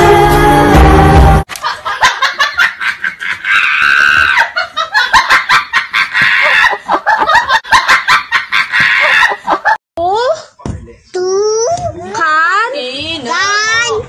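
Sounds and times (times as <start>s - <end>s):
person laughing hard: 1.6s - 9.8s.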